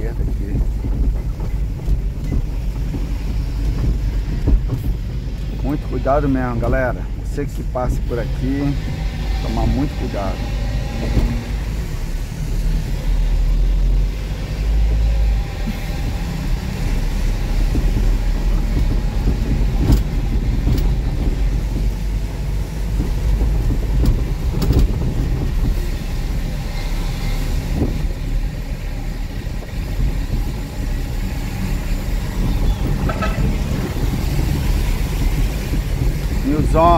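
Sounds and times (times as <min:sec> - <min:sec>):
truck engine and road rumble: 0:00.0 - 0:36.9.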